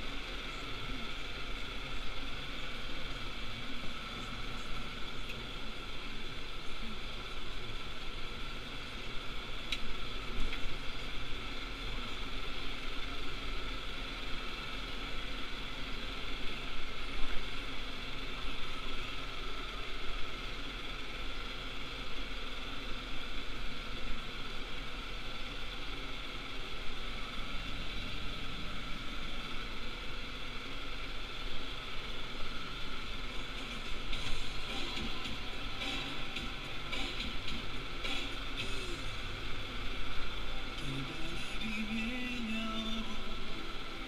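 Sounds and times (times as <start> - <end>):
tractor engine running: 0.0 - 44.0.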